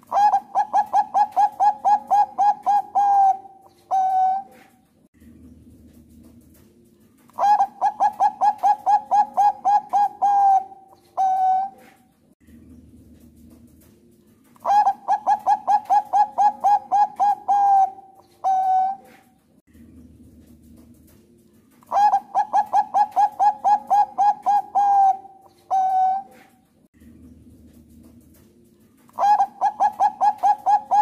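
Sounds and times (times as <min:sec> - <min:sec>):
dove cooing: 0:00.0 - 0:04.8, 0:07.3 - 0:12.1, 0:14.5 - 0:19.4, 0:21.2 - 0:26.6, 0:29.1 - 0:31.0
faint low hum: 0:05.2 - 0:08.1, 0:12.2 - 0:14.9, 0:19.3 - 0:22.2, 0:26.6 - 0:29.4.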